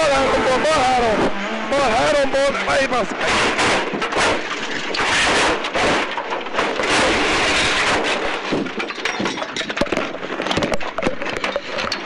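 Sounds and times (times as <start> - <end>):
tyres and stones scraping: 0.0 - 12.0
car bodywork impacts: 3.1 - 11.5.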